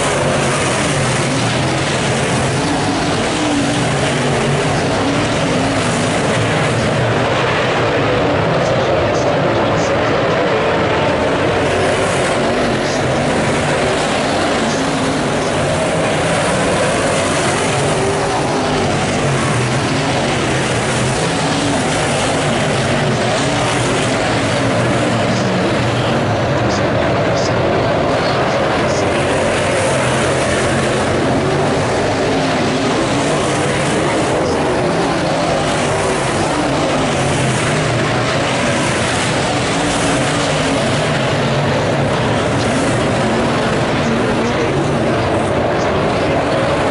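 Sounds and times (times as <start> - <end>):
race car engines running hard: 0.0 - 46.9.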